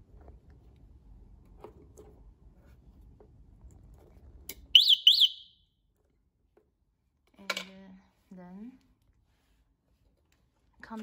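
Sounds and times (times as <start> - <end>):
electronic alarm chirps: 4.8 - 5.6.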